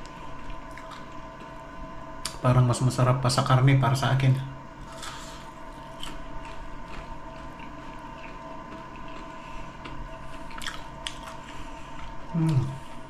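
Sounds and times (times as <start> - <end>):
person chewing: 0.0 - 1.6, 4.8 - 13.0
faint steady hum: 0.0 - 13.0.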